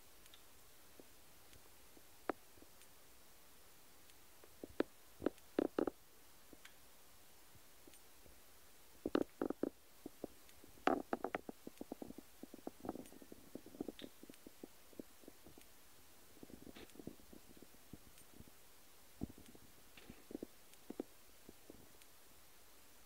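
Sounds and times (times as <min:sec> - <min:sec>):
kitten paws tapping: 0:04.6 - 0:06.0, 0:09.0 - 0:15.7.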